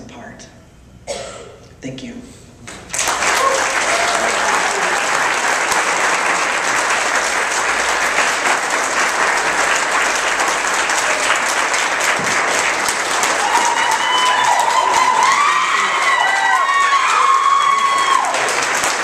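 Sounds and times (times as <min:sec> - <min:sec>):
audience applauding: 0:02.7 - 0:19.0
people cheering and whooping: 0:03.0 - 0:05.8, 0:10.8 - 0:11.7, 0:12.8 - 0:19.0.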